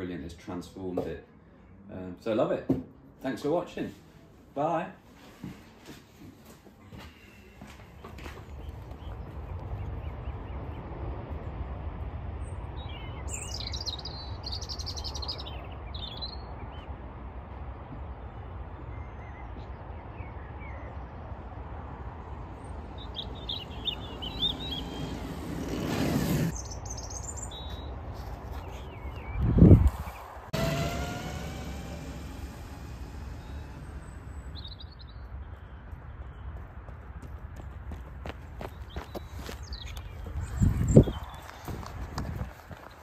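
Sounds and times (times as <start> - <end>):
small birds chirping: 7.1 - 10.9, 12.4 - 17.0, 22.1 - 42.8
electric tricycle passing: 22.2 - 26.6, 30.5 - 34.8.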